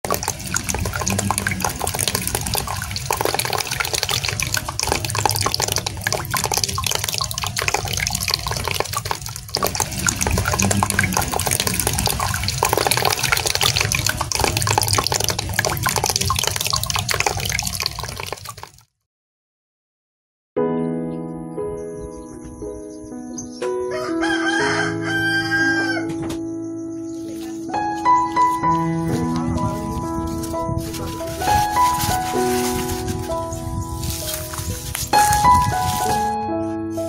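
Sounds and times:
fountain water trickling: 0.0 - 18.8, 29.9 - 36.2.

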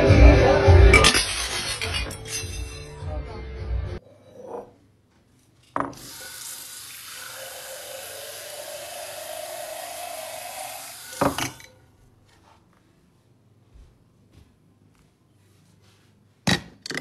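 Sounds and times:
tap water filling a glass mug: 5.8 - 11.7
faucet knock: 11.2 - 11.6.

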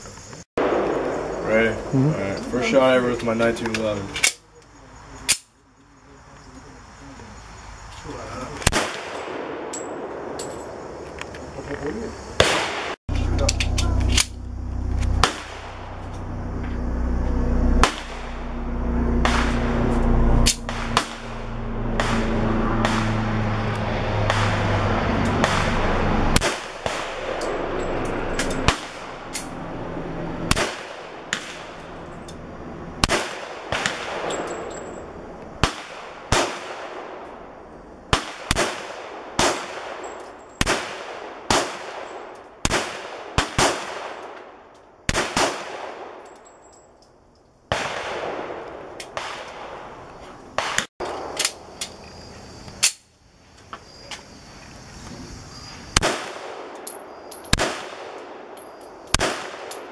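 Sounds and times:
pistol shots with echo: 0.6 - 1.4, 8.7 - 10.5, 12.4 - 13.0, 17.8 - 19.8, 20.4 - 23.3, 24.2 - 27.8, 30.5 - 31.8, 33.0 - 34.8, 35.6 - 37.5, 38.1 - 44.5, 45.1 - 46.2, 47.7 - 49.8, 56.0 - 59.9.

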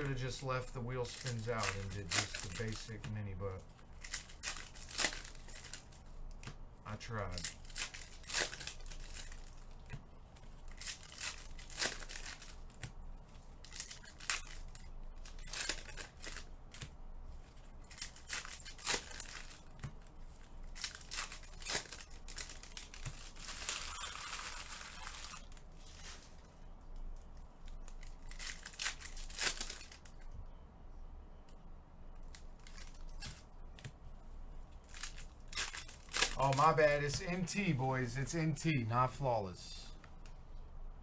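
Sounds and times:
card pack wrappers crinkling: 0.0 - 30.3, 32.2 - 34.0, 34.8 - 38.4.

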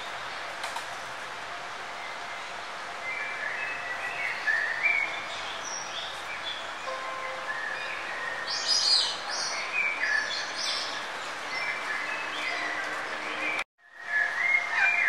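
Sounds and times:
steady background hiss: 0.0 - 15.0
birds chirping and singing: 2.0 - 15.0.

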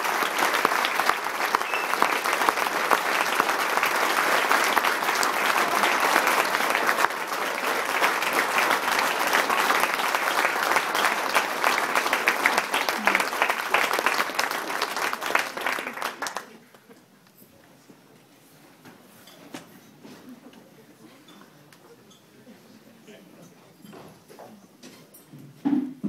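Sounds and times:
large audience applauding: 0.0 - 16.7.

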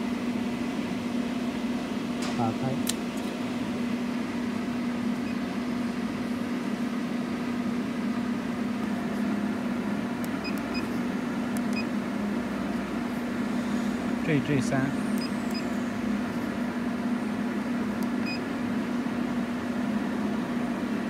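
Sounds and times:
machine electrical hum: 0.0 - 21.0
short keypad beeps: 18.2 - 18.4.

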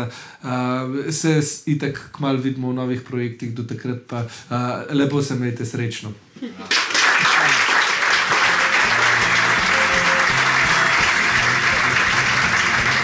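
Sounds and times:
audience applauding: 6.7 - 13.0
music: 8.0 - 13.0.

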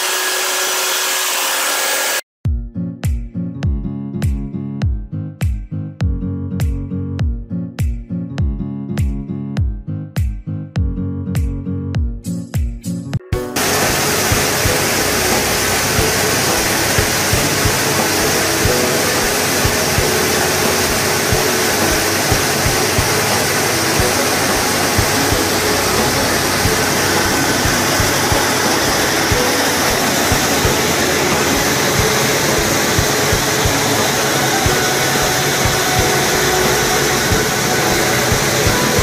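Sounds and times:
rice mill machinery running: 0.0 - 2.2, 13.6 - 39.0.

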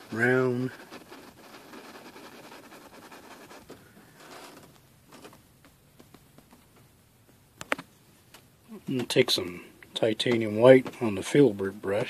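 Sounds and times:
paintbrush scratching on canvas: 0.0 - 4.6
faint taps: 10.2 - 11.1.

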